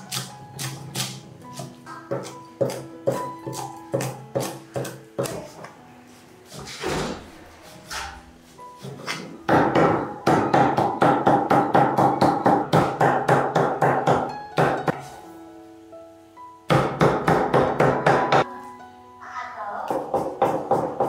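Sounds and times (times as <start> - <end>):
background music: 0.0 - 21.0
sharp strikes on wood: 9.0 - 14.8.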